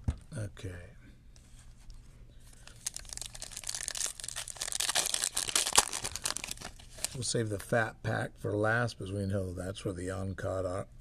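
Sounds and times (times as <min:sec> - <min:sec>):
foil wrapper tearing and crinkling: 0:02.7 - 0:07.2.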